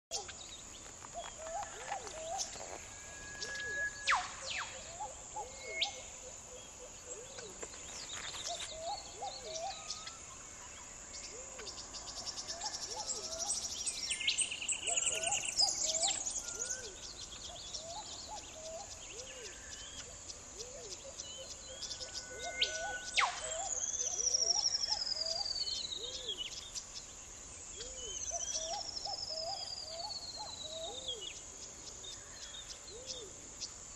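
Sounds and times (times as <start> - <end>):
insect chorus: 0.1 - 33.9
bird hooting: 1.2 - 7.6, 17.8 - 26.4
long falling bird whistles: 3.0 - 4.8
bird chirps and trills: 7.1 - 26.8.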